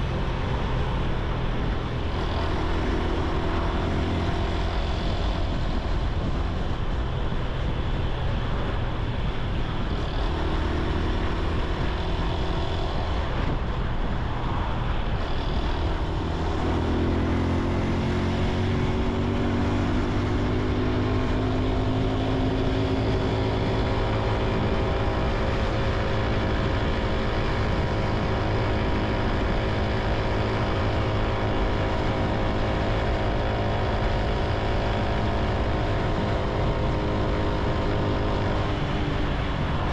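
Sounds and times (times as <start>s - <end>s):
motorcycle engine running: 0.0s - 39.9s.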